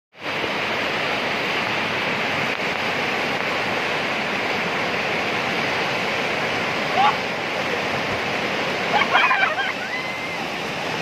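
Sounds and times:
river rapids rushing over boulders: 0.2 - 11.0.

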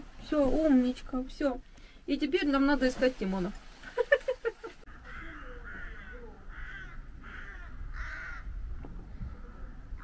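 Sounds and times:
crow cawing: 4.9 - 8.5.

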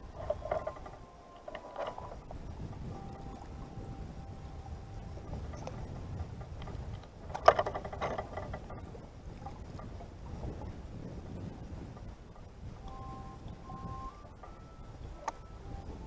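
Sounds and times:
wind and water rumble: 0.0 - 16.0.

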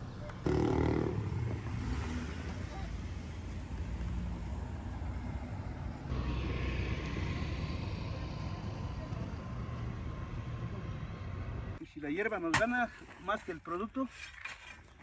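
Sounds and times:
car traffic passing: 0.0 - 11.8.

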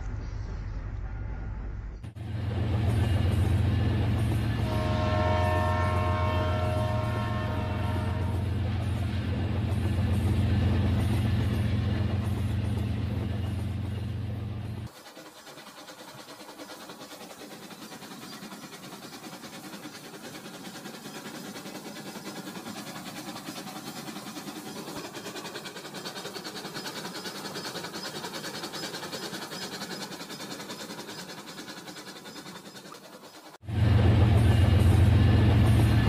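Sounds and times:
toy train motor whirring: 14.9 - 33.6
toy train rattling on track: 14.9 - 33.6.

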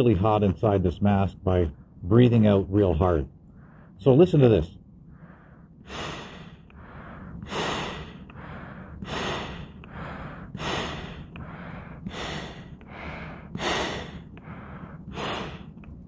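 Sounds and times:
soft breaths in: 3.4 - 4.1, 5.0 - 16.0
man exhaling through respirator: 5.1 - 15.8.

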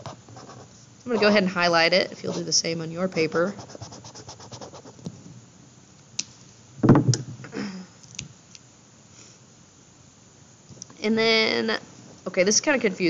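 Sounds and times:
highlighter scratching on paper: 0.0 - 1.4, 2.2 - 5.0
thump on desk: 6.8 - 7.4.

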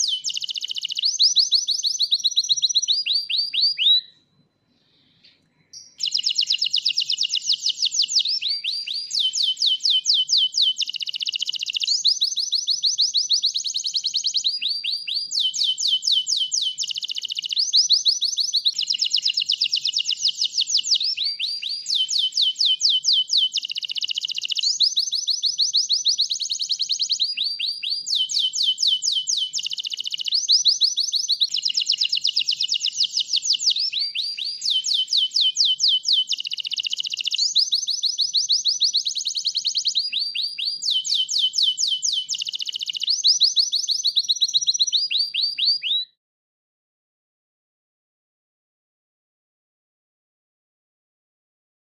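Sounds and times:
canary singing fast trills: 0.0 - 4.1, 5.0 - 46.1.

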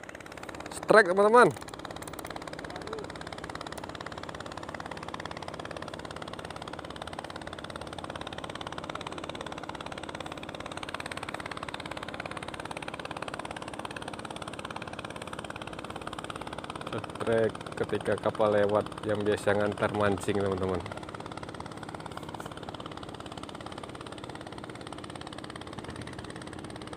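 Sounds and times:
boat motor running: 0.0 - 26.9.

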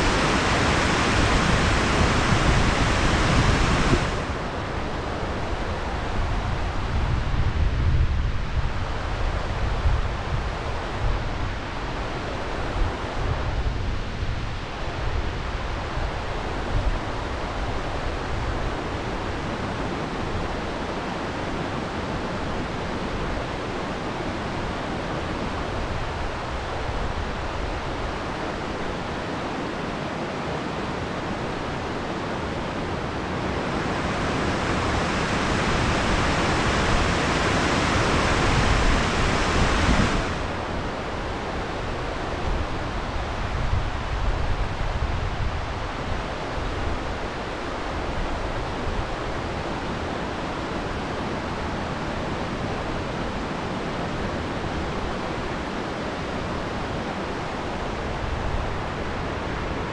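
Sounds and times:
wind buffeting microphone: 0.0 - 20.9, 31.2 - 50.1
river water rushing over weir: 0.0 - 59.9.

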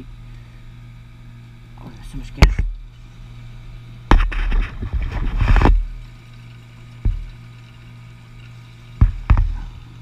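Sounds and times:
knock: 9.0 - 9.5.

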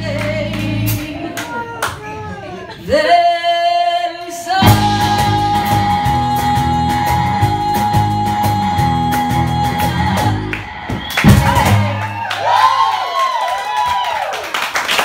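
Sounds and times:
upright double bass: 0.0 - 1.2, 4.6 - 10.6, 11.2 - 12.2
woman singing: 0.0 - 1.9, 2.7 - 12.1.

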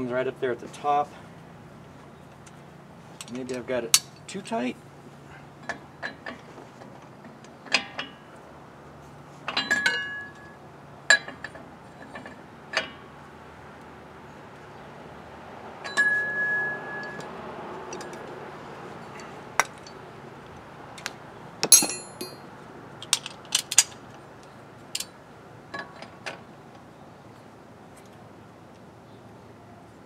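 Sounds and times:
metal piece ringing: 21.6 - 22.5
steel tools clinking: 21.6 - 24.0.

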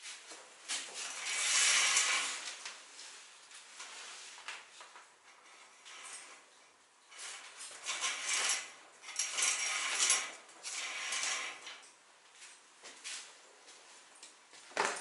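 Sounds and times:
curtain rings dragged along rod: 0.7 - 3.2, 5.4 - 11.9.

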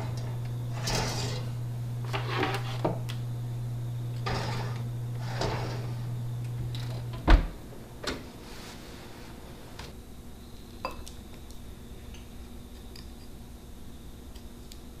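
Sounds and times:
metal tin scraping on oven rack: 0.0 - 2.9, 4.2 - 6.2
low steady hum: 0.0 - 15.0
oven door thump: 7.0 - 8.2.

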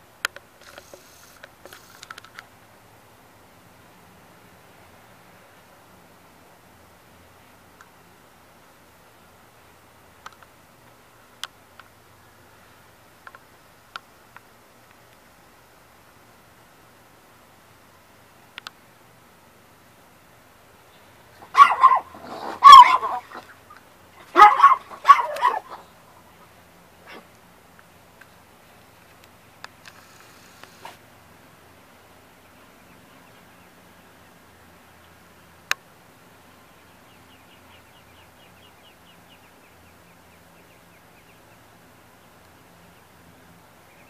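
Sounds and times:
loud animal calls: 21.4 - 25.9
ducklings peeping: 32.4 - 35.5, 36.4 - 43.2, 43.8 - 44.0.

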